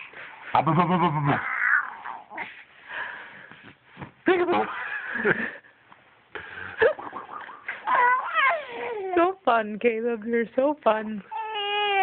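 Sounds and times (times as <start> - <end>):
baby cooing: 7.3 - 9.2, 11.3 - 12.0
baby squealing: 7.6 - 9.2, 11.3 - 12.0.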